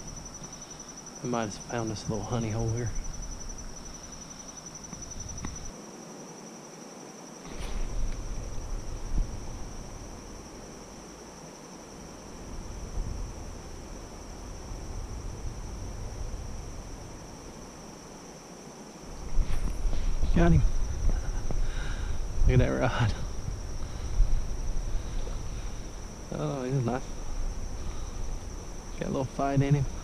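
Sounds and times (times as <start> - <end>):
insects trilling: 0.0 - 30.0
low rumble on microphone: 7.5 - 11.2, 12.0 - 17.8, 19.1 - 30.0.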